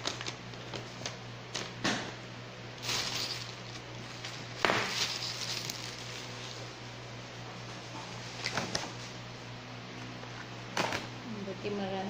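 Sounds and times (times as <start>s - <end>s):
steady low hum: 0.0s - 12.0s
rustling: 2.8s - 6.7s.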